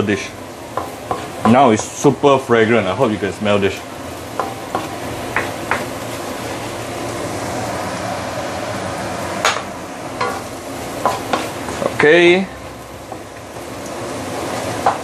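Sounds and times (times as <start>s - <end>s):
paste sizzling in oil: 0.0s - 15.0s
wooden spatula scraping a wok: 10.2s - 12.0s.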